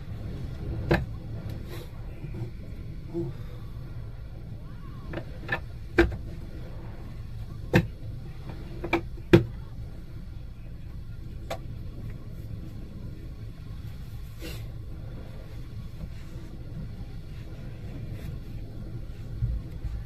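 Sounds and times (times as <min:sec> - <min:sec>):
rough sea water churning: 0:00.0 - 0:20.0.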